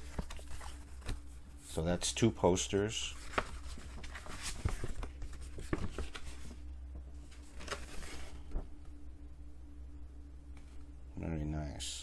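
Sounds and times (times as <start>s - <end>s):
paper rustling and crinkling: 0.0s - 1.4s, 3.0s - 6.6s, 7.2s - 8.6s
steady low hum: 0.0s - 12.0s.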